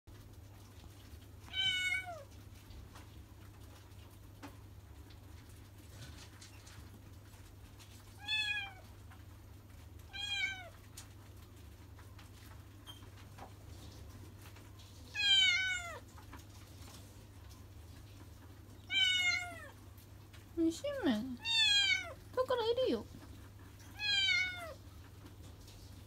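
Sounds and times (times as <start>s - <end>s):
kitten meowing: 18.9s - 19.7s, 21.4s - 22.2s, 24.0s - 24.8s.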